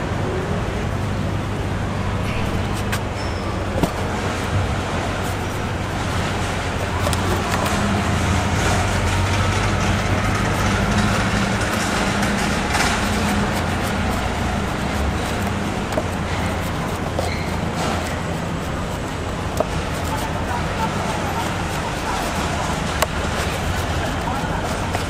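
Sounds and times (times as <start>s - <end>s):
road traffic: 0.0s - 25.0s
vehicle engines droning: 0.0s - 25.0s.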